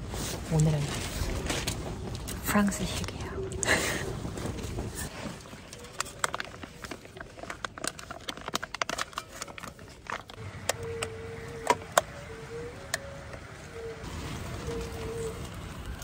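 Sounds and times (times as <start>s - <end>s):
foil pouch crinkling: 0.6s - 10.4s.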